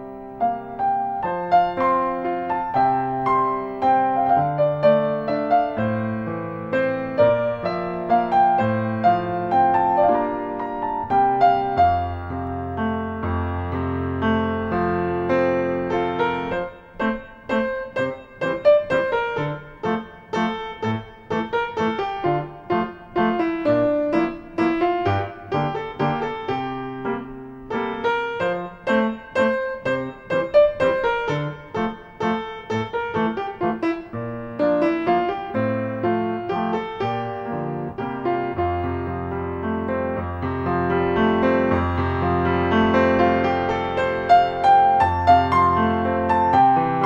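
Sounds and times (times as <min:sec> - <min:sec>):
solo piano music: 0:00.0 - 0:47.0.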